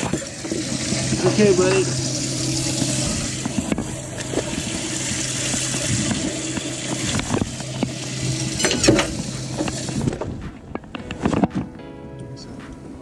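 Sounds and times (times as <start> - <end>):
pump humming: 0.0 - 10.3
water pouring and splashing: 0.0 - 10.5.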